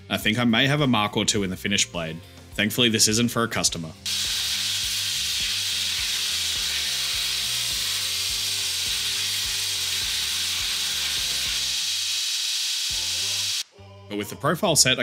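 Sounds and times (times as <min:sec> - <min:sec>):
power tool grinding steel: 0:04.1 - 0:13.6.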